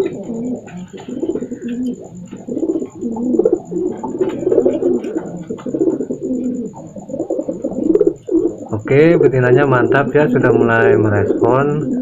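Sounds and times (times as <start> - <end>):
pigeon cooing: 0.0 - 12.0.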